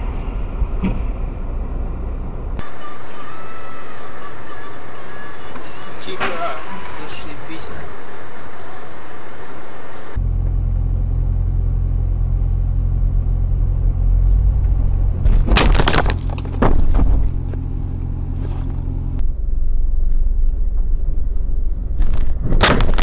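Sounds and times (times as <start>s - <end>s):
car engine droning: 0.0s - 22.9s.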